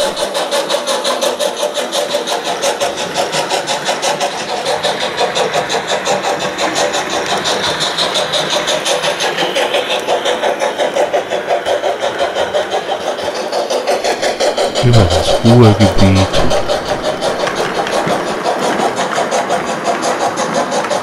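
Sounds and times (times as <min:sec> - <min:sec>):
model steam locomotive chuffing: 0:00.0 - 0:21.0.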